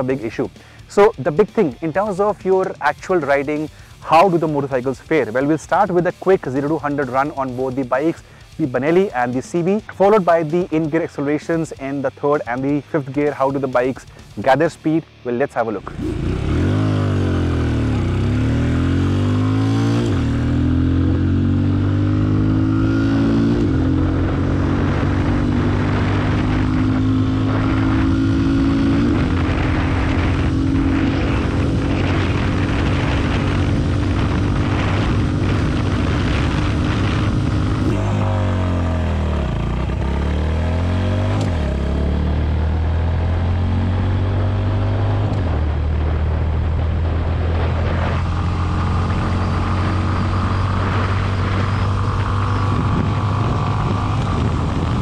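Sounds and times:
motorcycle engine accelerating: 0:15.7 - 0:55.0
wind rushing: 0:15.8 - 0:41.7, 0:45.5 - 0:55.0.

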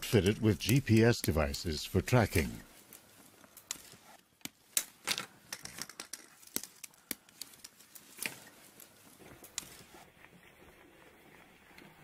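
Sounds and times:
small clicks of wire handling: 0:02.7 - 0:09.9.

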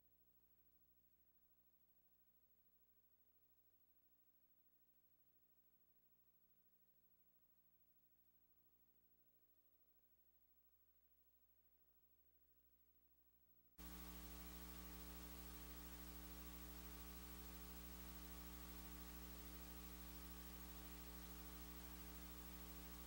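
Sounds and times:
faint electrical mains hum: 0:13.8 - 0:23.0.

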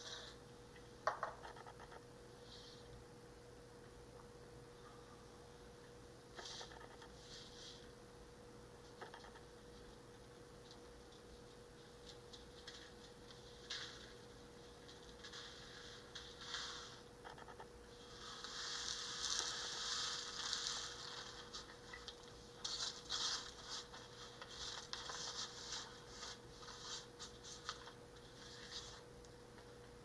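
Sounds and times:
paper rustling on countertop: 0:11.8 - 0:17.1, 0:18.0 - 0:29.1.

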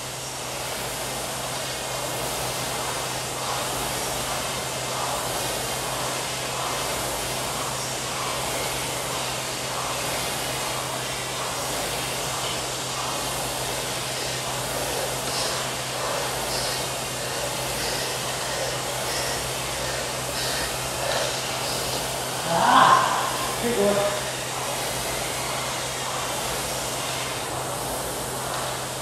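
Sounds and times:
rowing machine fan whirring: 0:00.0 - 0:29.0
breathing puffs: 0:14.7 - 0:23.6.

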